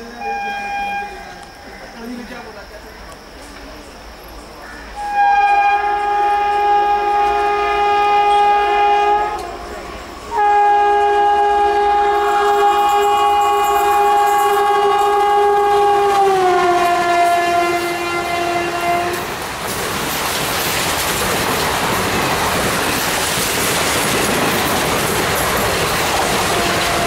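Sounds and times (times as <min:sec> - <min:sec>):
locomotive horn blasts: 0:00.0 - 0:01.6, 0:05.0 - 0:19.4, 0:26.2 - 0:27.0.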